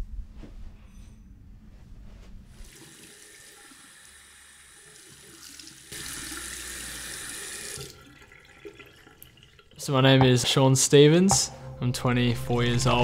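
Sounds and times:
tap water running into basin: 2.6 - 9.9.

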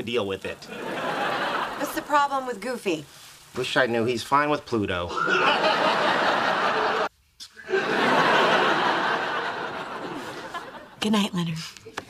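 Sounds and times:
studio audience laughing: 0.7 - 2.2, 5.1 - 11.0.

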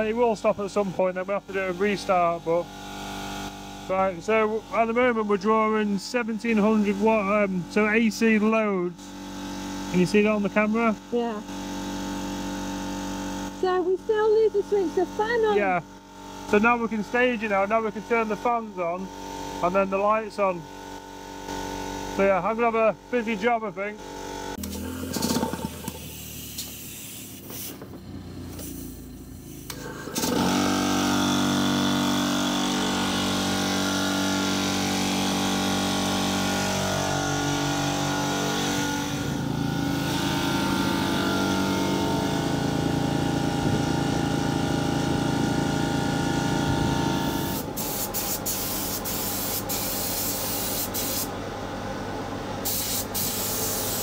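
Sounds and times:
motor humming: 24.0 - 33.8
paint spray gun hissing: 25.6 - 29.8, 47.3 - 51.3, 52.6 - 54.0.

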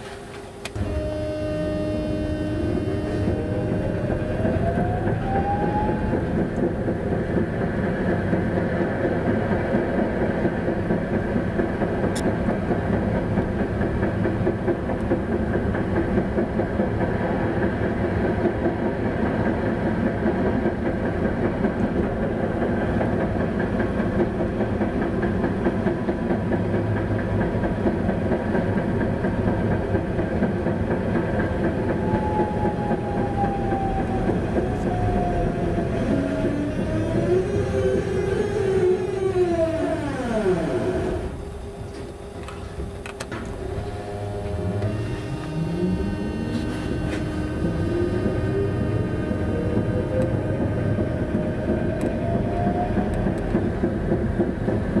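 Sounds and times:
tram wheels rumbling on rails: 0.0 - 55.0
thin motor whine: 40.2 - 49.5.

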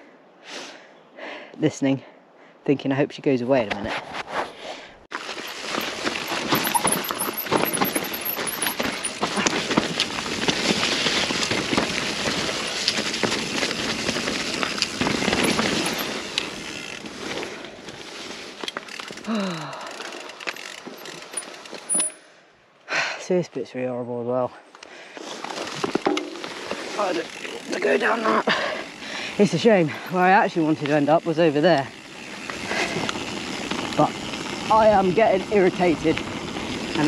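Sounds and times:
bike tyres crunching on dirt: 5.1 - 22.3, 25.1 - 37.0.

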